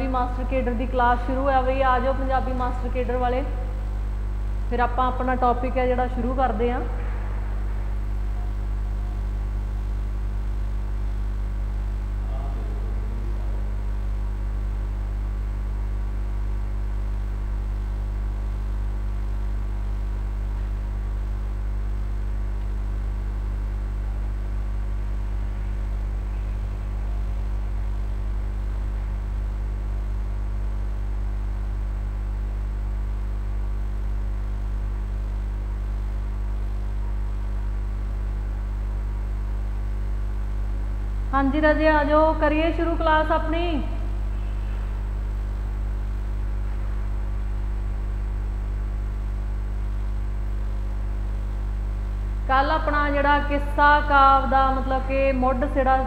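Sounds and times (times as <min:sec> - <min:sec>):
electrical mains hum: 0:00.0 - 0:56.0.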